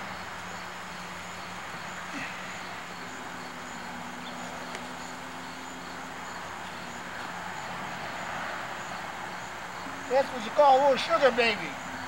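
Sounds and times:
insects chirping: 0.0s - 12.0s
steady hiss: 0.0s - 12.0s.

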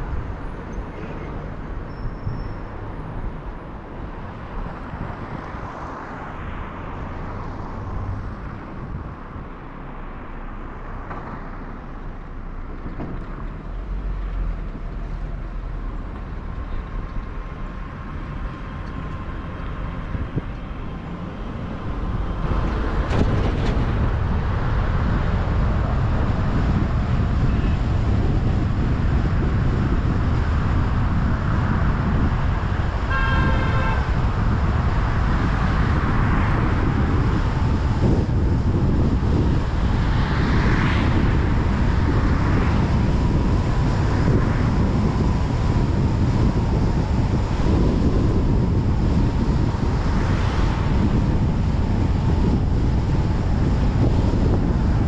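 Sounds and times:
car engine and tyre road noise: 0.0s - 55.0s
car horn toot: 33.1s - 34.2s.

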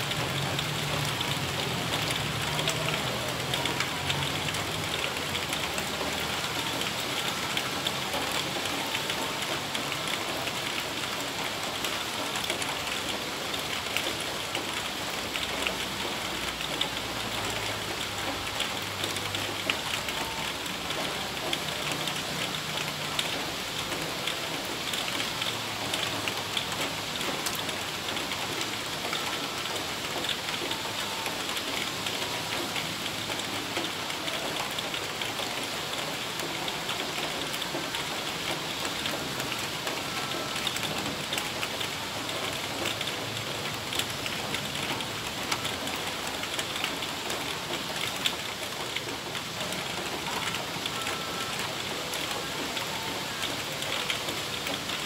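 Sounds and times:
heavy rain falling: 0.0s - 55.0s.

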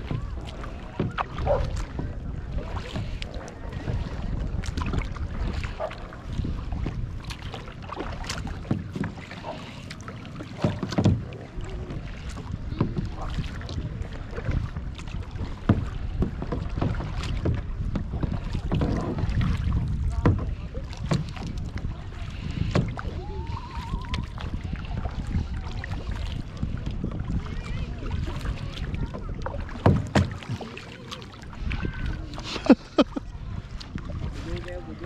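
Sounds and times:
paddle splashing in water: 0.0s - 35.0s
wind rumble on microphone: 0.0s - 35.0s
thump: 29.8s - 30.5s.

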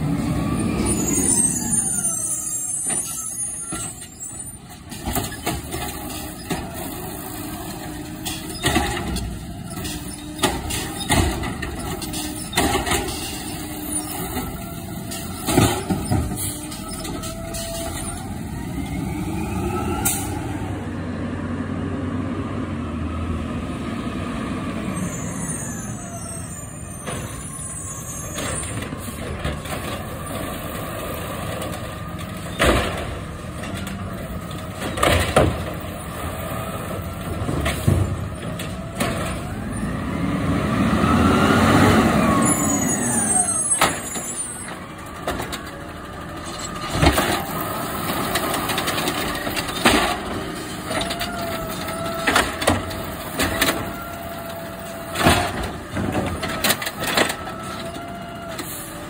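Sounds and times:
knocks and bangs of carts: 0.0s - 18.8s, 26.7s - 40.1s, 41.8s - 59.0s
garbage truck engine running: 0.0s - 21.6s, 24.6s - 59.0s
hydraulic whines: 0.1s - 20.7s, 24.9s - 29.4s, 37.0s - 59.0s.

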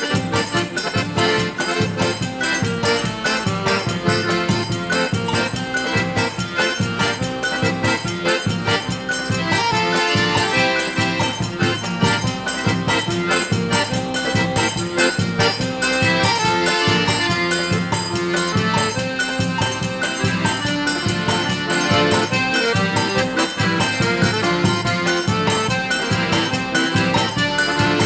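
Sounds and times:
accordion-led folk music: 0.0s - 28.0s.

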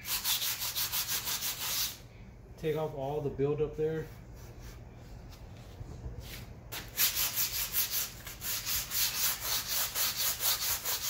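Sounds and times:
sandpaper scraping rusty steel: 0.0s - 2.0s, 6.8s - 11.0s.

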